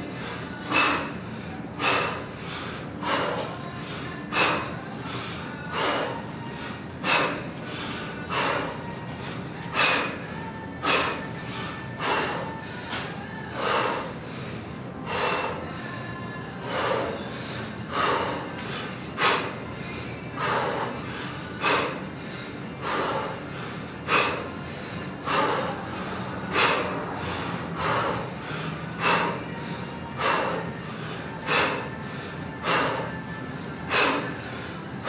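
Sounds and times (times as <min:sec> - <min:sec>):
man breathing out sharply: 0:33.9 - 0:34.8.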